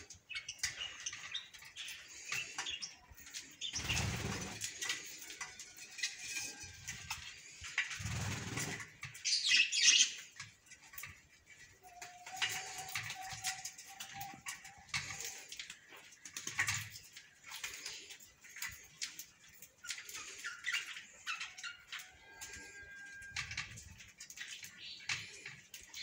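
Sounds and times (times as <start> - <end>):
budgerigars chattering and chirping: 0.0 - 5.2, 5.9 - 10.5, 18.7 - 23.7.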